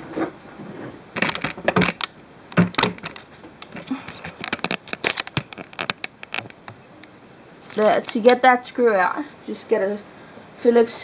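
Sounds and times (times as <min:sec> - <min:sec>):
hex key and plastic parts rattling: 0:01.2 - 0:06.7.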